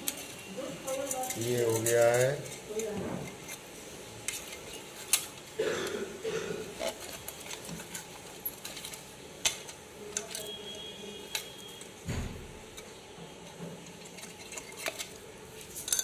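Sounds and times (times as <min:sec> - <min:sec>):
metal blade scraping ceramic: 0:00.0 - 0:05.3.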